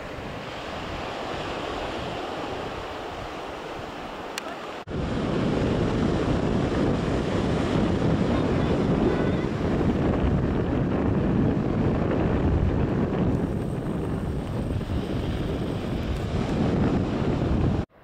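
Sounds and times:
waves breaking on beach: 0:00.0 - 0:17.9
wind buffeting microphone: 0:00.0 - 0:18.0.

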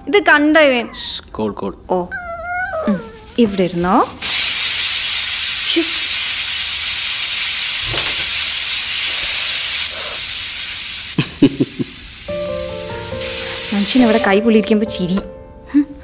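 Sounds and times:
pressure cooker hissing steam: 0:03.6 - 0:14.4.

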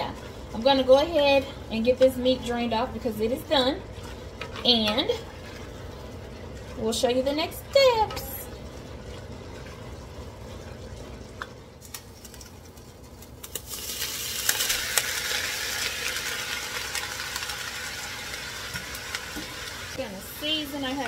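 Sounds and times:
range hood fan hum: 0:00.0 - 0:21.0
meat sizzling in a pot: 0:11.8 - 0:21.0.

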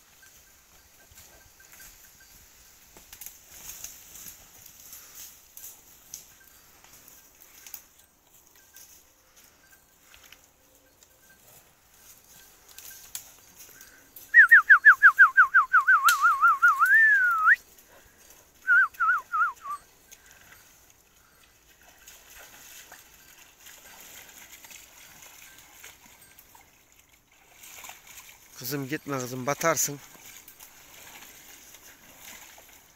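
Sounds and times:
person whistling a trill: 0:14.2 - 0:17.6, 0:18.6 - 0:20.0.

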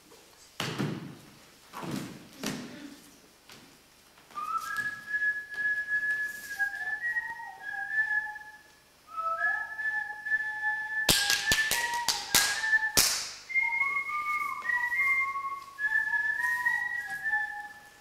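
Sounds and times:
person whistling a slow tune: 0:04.3 - 0:18.0.

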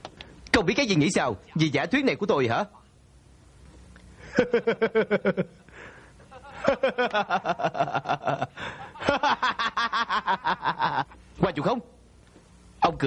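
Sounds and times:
man laughing derisively: 0:04.2 - 0:05.6, 0:06.2 - 0:11.2.

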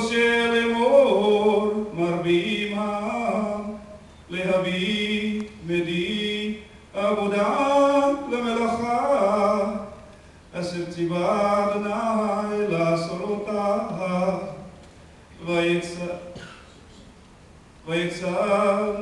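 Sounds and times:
man chanting unaccompanied: 0:00.0 - 0:14.7, 0:15.4 - 0:16.5, 0:17.8 - 0:19.0
short breaths: 0:10.1 - 0:10.5.

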